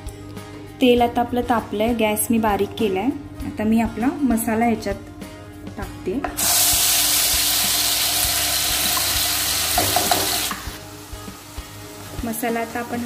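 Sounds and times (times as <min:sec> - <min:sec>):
paste sizzling in hot oil: 0:06.4 - 0:13.0.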